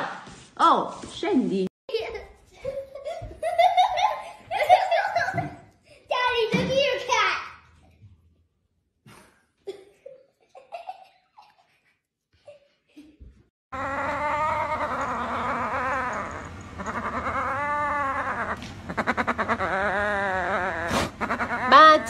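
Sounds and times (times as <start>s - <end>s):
cat growling and yowling: 13.8s - 22.0s.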